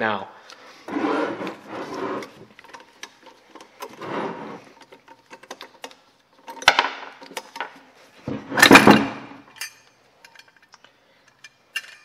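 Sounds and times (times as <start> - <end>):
metal clicks of wrench and nuts: 4.8 - 7.8, 8.6 - 12.0
metal housing clattering on wood: 4.8 - 9.7.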